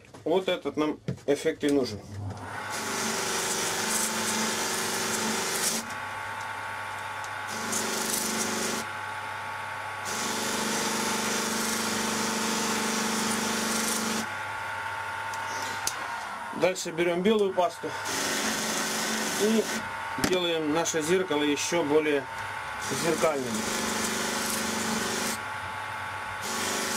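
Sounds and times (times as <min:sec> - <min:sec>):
polishing motor humming: 0:02.4 - 0:26.9.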